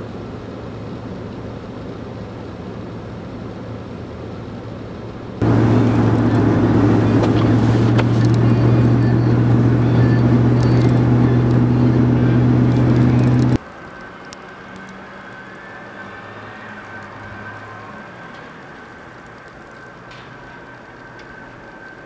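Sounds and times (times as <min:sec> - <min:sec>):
car engine and tyres on snow: 0:00.0 - 0:22.0
traffic rumble: 0:00.0 - 0:22.0.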